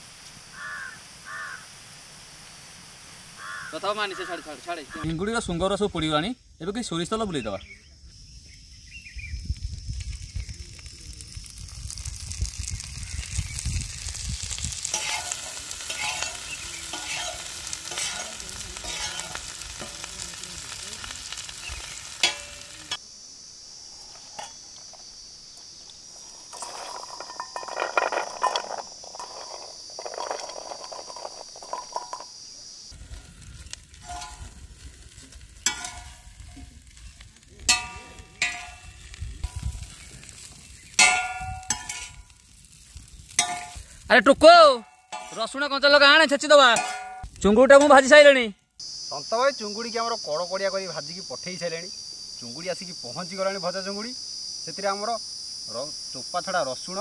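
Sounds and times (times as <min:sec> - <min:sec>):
prawns sizzling in oil: 0:00.0 - 0:06.2, 0:08.2 - 0:57.0
scraping strokes on a pan: 0:14.0 - 0:23.0, 0:33.1 - 0:44.0.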